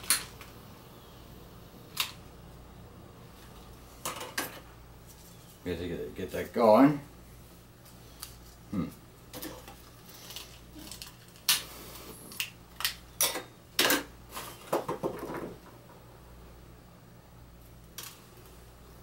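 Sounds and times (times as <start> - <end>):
steady low hum: 0.0 - 14.4.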